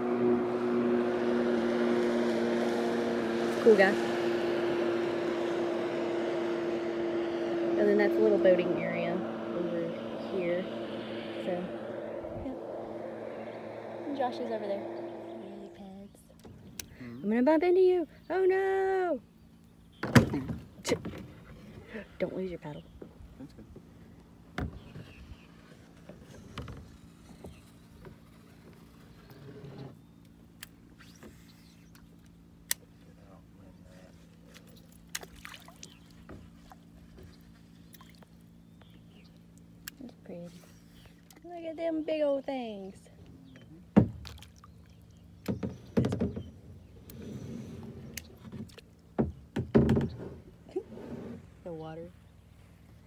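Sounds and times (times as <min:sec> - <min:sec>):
distant motorboat engine hum: 0:00.0 - 0:53.0
paddle splashing and dripping: 0:34.5 - 0:37.0, 0:44.0 - 0:46.2
paddle knocking against kayak: 0:45.5 - 0:46.6, 0:48.4 - 0:50.3.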